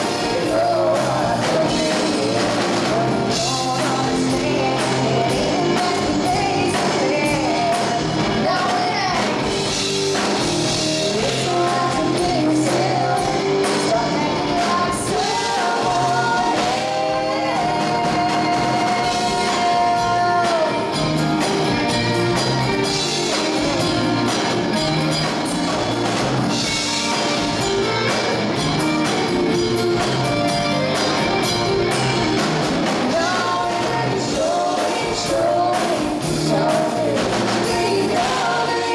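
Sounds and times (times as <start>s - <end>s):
women singing: 0.0s - 9.7s, 10.3s - 21.2s, 33.0s - 38.9s
drum kit: 0.0s - 38.9s
electric guitar: 0.0s - 38.9s.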